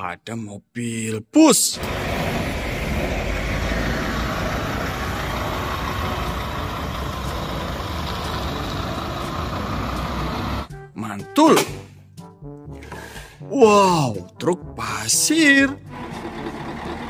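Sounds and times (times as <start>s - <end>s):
bus engine rumble: 1.8s - 10.7s
tyre noise on cobblestones: 1.8s - 10.7s.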